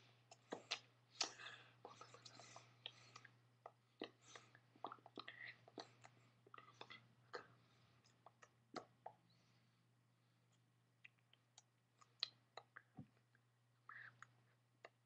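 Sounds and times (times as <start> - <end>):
soft mouth noises: 0.0 - 9.6, 10.4 - 15.0.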